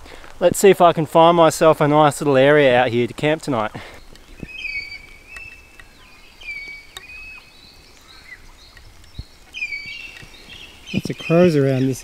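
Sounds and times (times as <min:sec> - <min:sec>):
faint background hiss: 0:00.0 - 0:12.0
birds whistling: 0:03.8 - 0:12.0.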